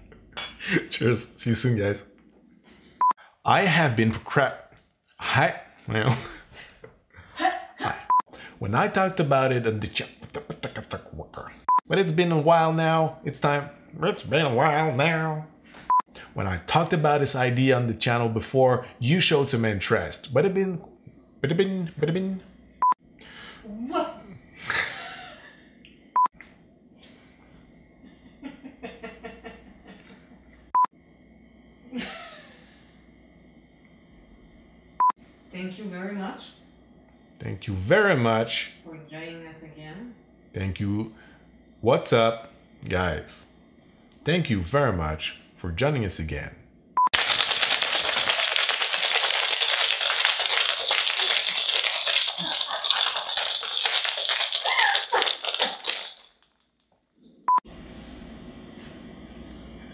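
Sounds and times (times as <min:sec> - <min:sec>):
person breathing: 0:08.3 - 0:08.6, 0:23.2 - 0:23.7
ice rattling in cocktail shaker: 0:47.2 - 0:56.8.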